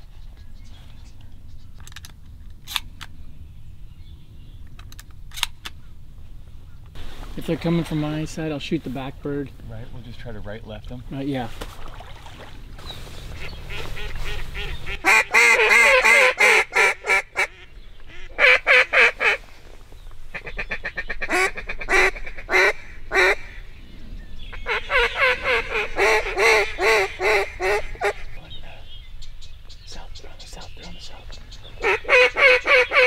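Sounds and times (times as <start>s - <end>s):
duck call blowing rapid calls: 13.4s - 19.4s, 20.3s - 23.6s, 24.6s - 28.3s, 31.8s - 33.0s.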